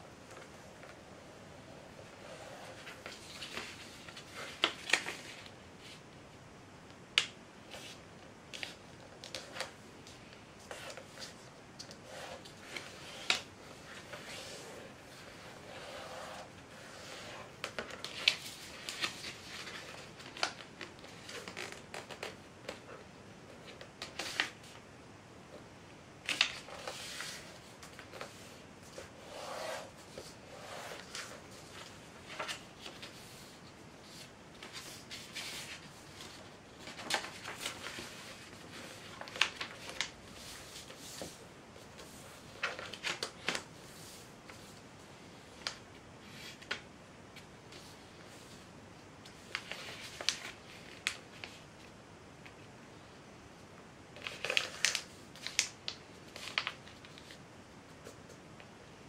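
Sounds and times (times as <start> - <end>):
paper rustling and crinkling: 2.3 - 5.9, 7.7 - 23.0, 26.2 - 44.8, 49.3 - 51.6, 54.2 - 58.3
paper creasing crackles: 16.4 - 23.0, 26.2 - 41.3.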